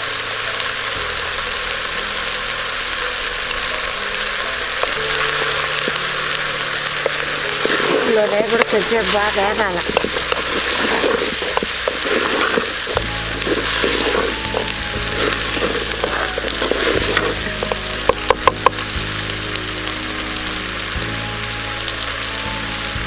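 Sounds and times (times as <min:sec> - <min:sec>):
vegetables sizzling in a pot: 0:00.0 - 0:23.0
wooden spatula scraping: 0:04.6 - 0:18.7.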